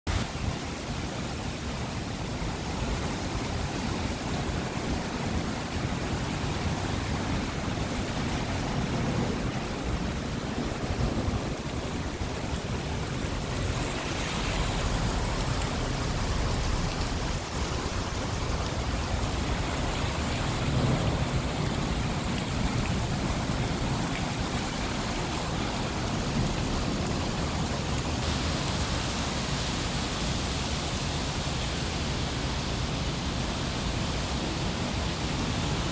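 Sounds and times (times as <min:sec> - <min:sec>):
heavy rain on pavement: 0:00.1 - 0:35.9.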